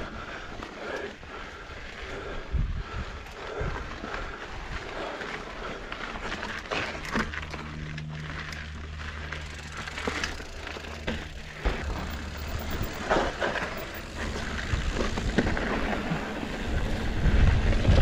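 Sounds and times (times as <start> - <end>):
bike tyres crunching on dirt: 0.0 - 18.0
low rumble: 5.5 - 18.0
bike clattering over bumps: 5.7 - 18.0.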